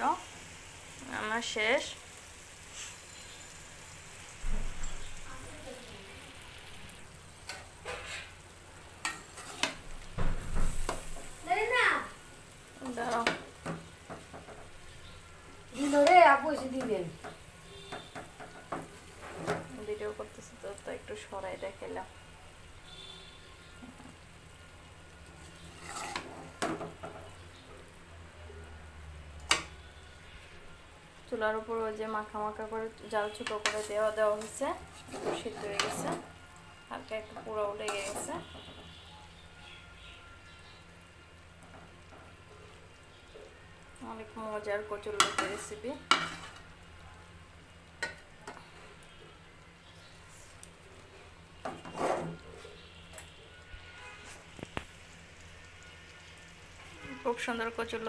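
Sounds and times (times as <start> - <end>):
food sizzling in a metal pan: 0.0 - 58.0
metal spoon scraping pot: 7.4 - 8.4, 9.0 - 9.8, 25.5 - 26.6, 33.4 - 36.2, 37.8 - 38.4, 45.2 - 46.6, 51.7 - 53.2.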